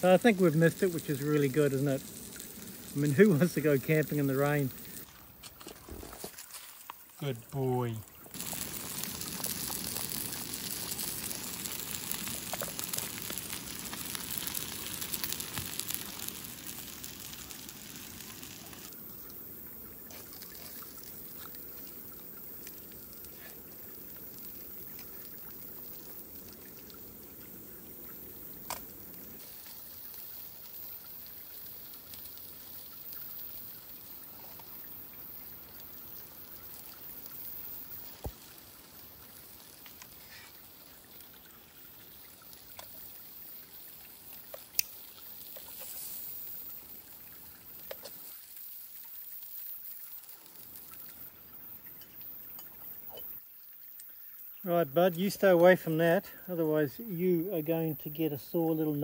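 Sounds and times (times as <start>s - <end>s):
food frying in a pan: 0.0s - 5.1s, 6.1s - 55.8s
gas burner hissing: 0.0s - 5.2s, 8.3s - 18.9s
pot boiling hard: 0.0s - 53.5s.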